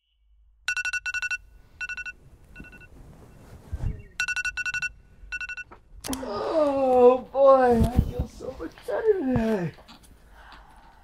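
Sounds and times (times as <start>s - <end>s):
alarm beeping: 0.7s - 2.9s, 4.2s - 5.7s.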